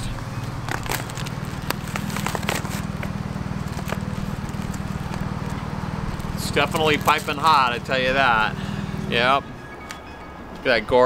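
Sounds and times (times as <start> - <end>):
cardboard box crackling: 0.0 - 7.9
steady low hum: 0.0 - 11.0.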